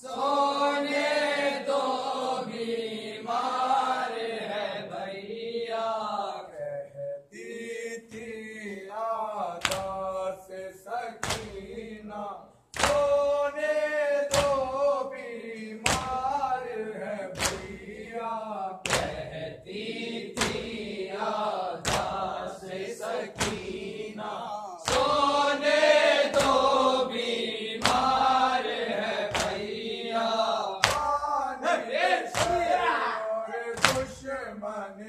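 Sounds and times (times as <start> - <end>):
men chanting a lament: 0.0 - 35.0
hands slapping chest: 9.6 - 10.1, 11.2 - 11.7, 12.7 - 13.2, 14.3 - 14.8, 15.8 - 16.3, 17.3 - 17.9, 18.8 - 19.2, 20.4 - 20.8, 21.8 - 22.3, 23.3 - 23.8, 24.8 - 25.3, 26.3 - 26.8, 27.8 - 28.3, 29.3 - 29.7, 30.8 - 31.2, 32.3 - 32.8, 33.7 - 34.2.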